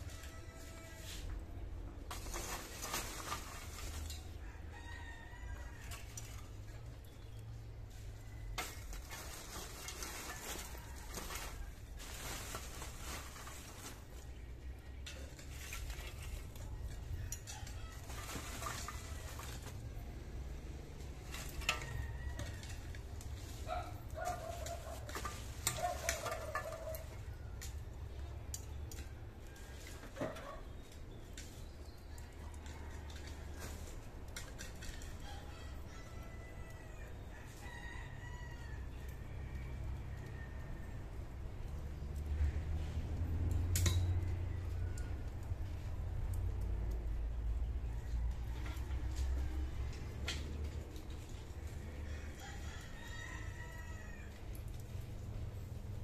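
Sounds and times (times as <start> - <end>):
rooster crowing: 0.0 - 1.3, 4.2 - 6.3, 35.3 - 41.0, 51.8 - 54.8
fire clicks and crackles: 0.0 - 56.0
low rumble of fire: 0.0 - 56.0.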